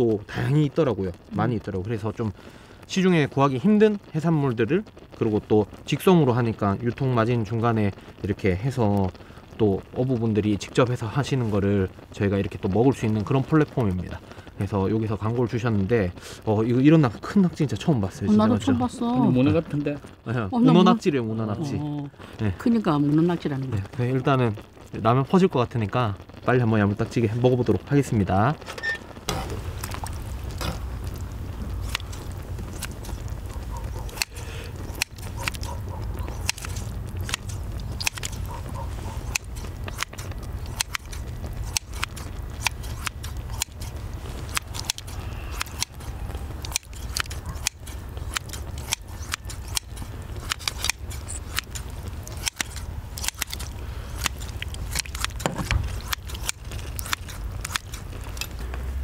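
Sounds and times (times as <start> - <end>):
low rumble: 29.1 - 33.8
metal scissors and tongs clicking: 56.0 - 58.5.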